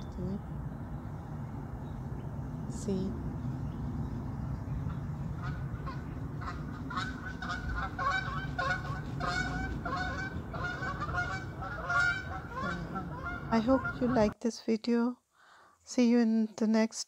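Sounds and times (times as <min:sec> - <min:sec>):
geese honking: 0:04.7 - 0:14.4.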